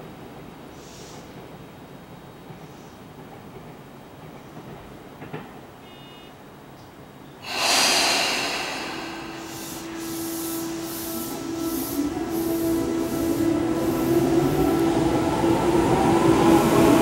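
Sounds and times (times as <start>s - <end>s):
air brakes hissing: 7.4s - 14.9s.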